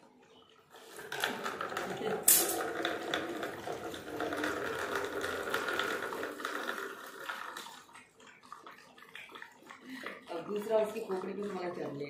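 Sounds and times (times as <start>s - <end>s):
puppies lapping: 0.0s - 12.0s
milk pouring into plastic bowl: 0.3s - 12.0s.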